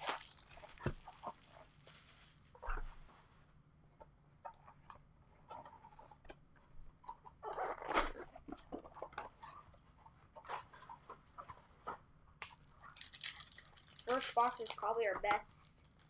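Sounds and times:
plastic wrap crinkling and tearing: 0.0 - 2.6, 7.5 - 8.3, 12.4 - 16.0.

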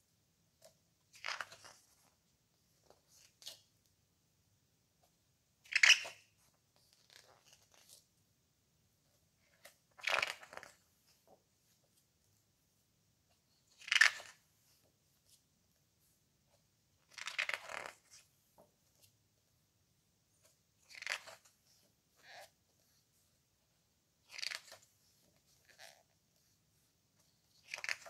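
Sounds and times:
book pages turning: 0.6 - 2.2, 5.7 - 8.1, 9.4 - 12.0, 13.7 - 15.4, 17.0 - 19.2, 20.4 - 23.0, 24.3 - 26.6, 27.2 - 28.0.

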